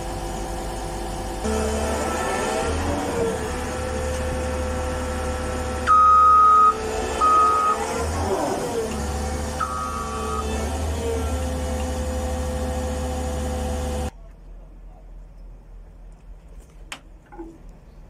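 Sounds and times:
diesel engine running: 0.0 - 14.1
reversing alarm beep: 5.9 - 7.9, 9.6 - 10.6.

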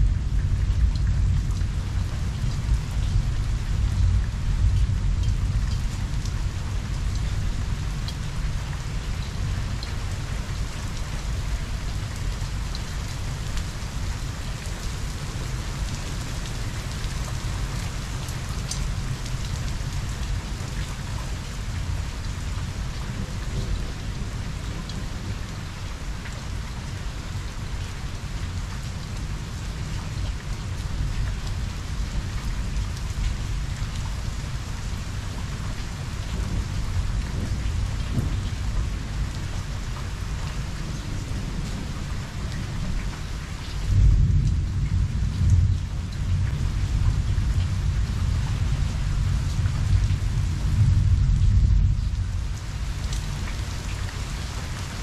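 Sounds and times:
steady rain falling: 0.0 - 55.0
thunder rumbling: 36.3 - 42.9, 43.9 - 52.6.

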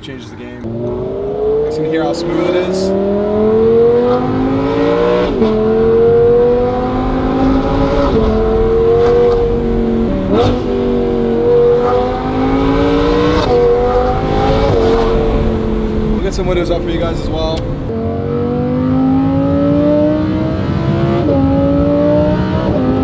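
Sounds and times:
car engine accelerating: 0.6 - 23.0.

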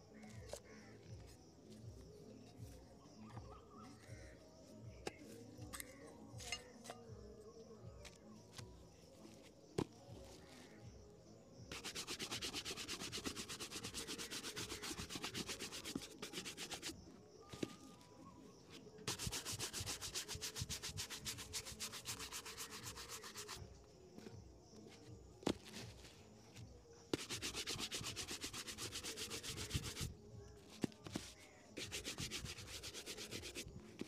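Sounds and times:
shoe brush buffing leather: 11.7 - 17.7, 19.0 - 23.6, 27.1 - 30.2, 31.0 - 33.8.

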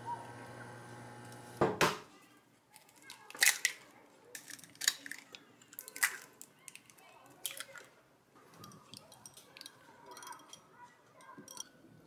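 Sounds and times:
eggs cracking: 2.8 - 7.9.

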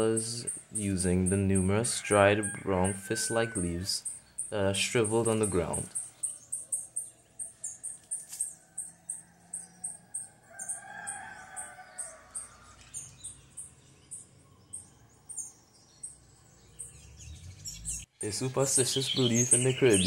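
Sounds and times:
high regular chirping: 0.0 - 20.0
rooster crowing: 1.8 - 4.0, 8.2 - 13.0.

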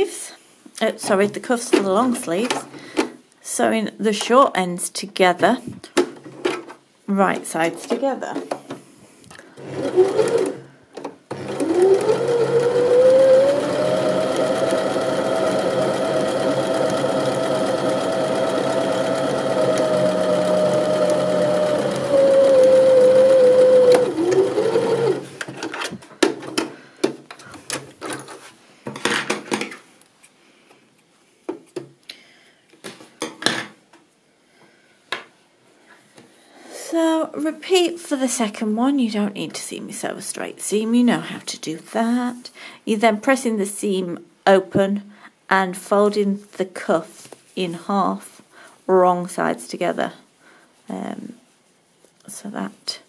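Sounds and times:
sewing machine stitching: 9.6 - 10.6, 11.3 - 25.3.

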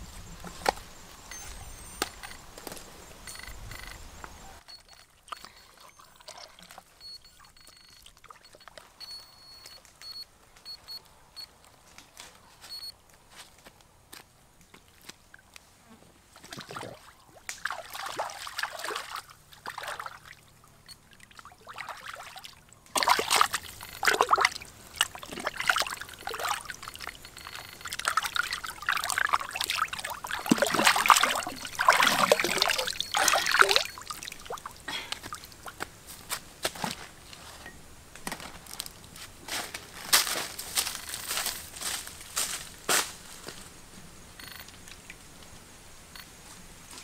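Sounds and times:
water splashing and sloshing: 4.9 - 9.2, 16.3 - 37.0.

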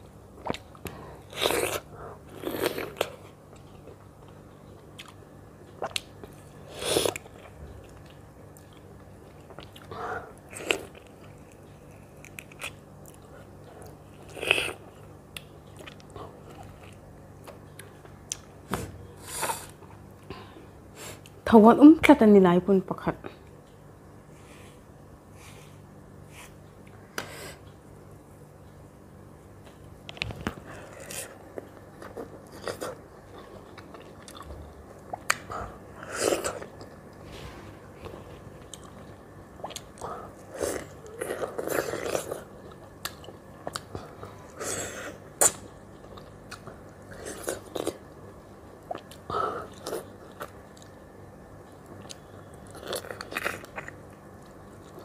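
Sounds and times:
chewing and mouth clicks: 2.4 - 6.4, 7.0 - 18.5, 30.0 - 35.5, 38.6 - 44.1, 45.4 - 48.0.

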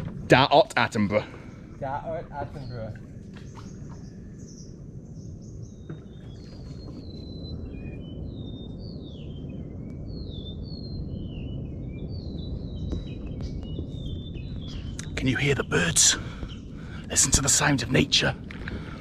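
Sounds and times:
birds chirping and whistling: 0.0 - 19.0
steady low rumble: 0.0 - 19.0.

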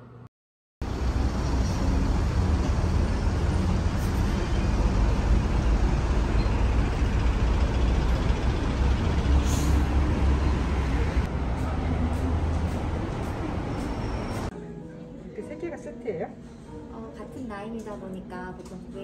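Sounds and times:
road traffic rumble: 0.8 - 14.5.

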